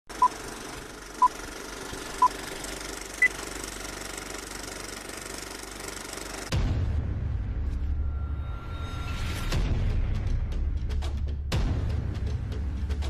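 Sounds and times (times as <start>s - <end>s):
film projector rattle and crackle: 0.1s - 6.5s.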